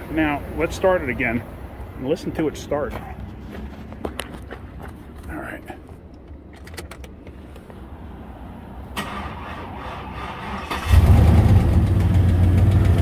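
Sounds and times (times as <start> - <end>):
car engine starting and running: 6.0 - 13.0.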